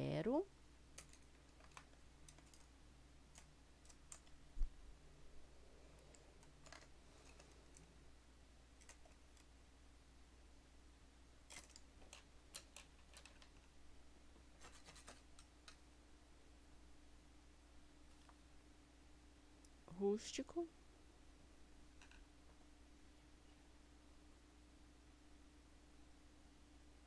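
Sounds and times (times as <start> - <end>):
painting tools clicking and tapping: 0.9 - 2.7, 11.5 - 13.6.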